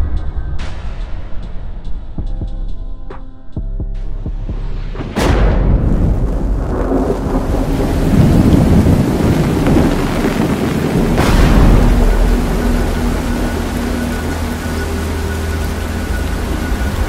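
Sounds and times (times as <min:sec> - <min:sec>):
rolling thunder: 0:05.0 - 0:17.0
sharp crack of thunder: 0:05.0 - 0:17.0
heavy rain falling: 0:05.7 - 0:17.0.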